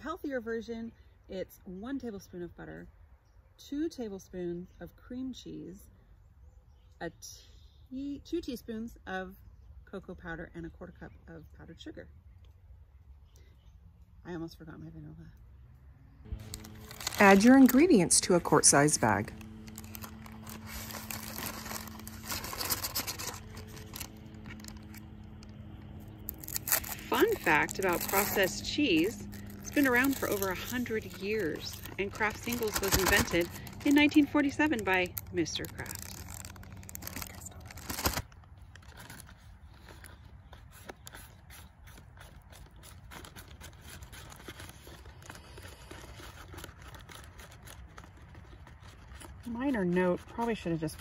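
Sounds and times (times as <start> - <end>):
low steady rumble: 8.7 - 51.0
plastic bag crinkling: 16.3 - 49.5
paper scraping: 16.3 - 51.0.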